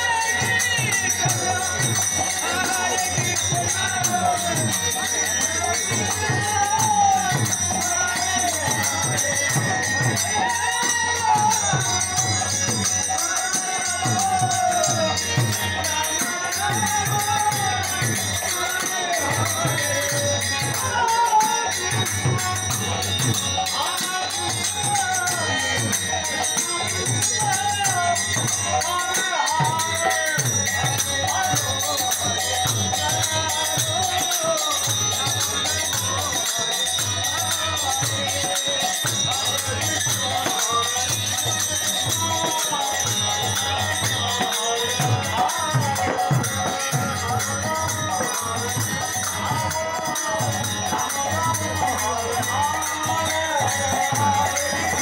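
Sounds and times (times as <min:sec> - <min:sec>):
men singing devotional chant: 0:00.0 - 0:55.0.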